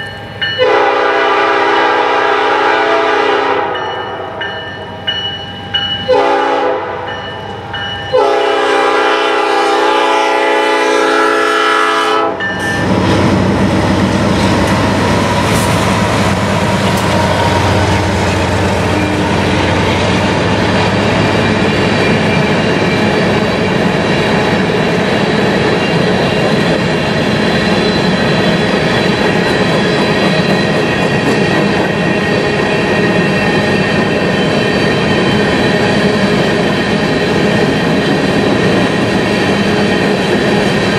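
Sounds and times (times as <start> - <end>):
train rumble and wheel clatter: 0.0 - 40.9
locomotive air horn blast: 0.6 - 4.2, 6.1 - 7.1, 8.1 - 12.9.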